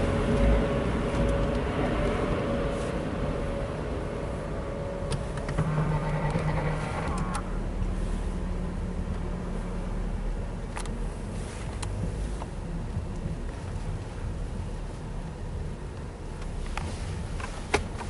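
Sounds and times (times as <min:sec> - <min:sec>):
low hum: 0:00.0 - 0:10.5
car cabin rumble: 0:00.0 - 0:18.0.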